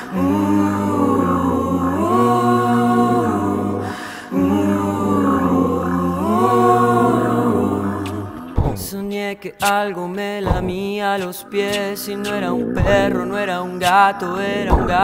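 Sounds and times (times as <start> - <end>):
a cappella voices singing harmonies: 0.0 - 15.0.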